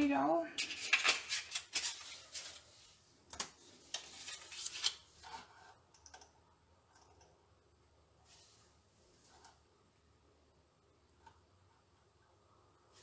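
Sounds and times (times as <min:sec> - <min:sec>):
card paper rustling and sliding: 0:00.6 - 0:03.0, 0:03.7 - 0:05.7.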